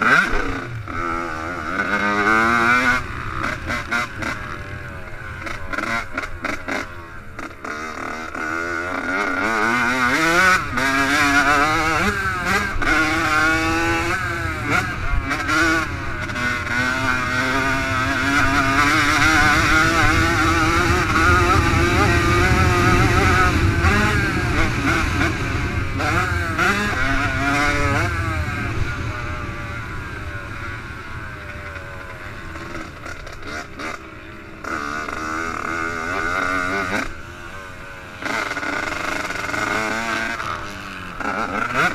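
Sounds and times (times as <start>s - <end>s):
two-stroke motorbike engine revving: 0.0s - 41.9s.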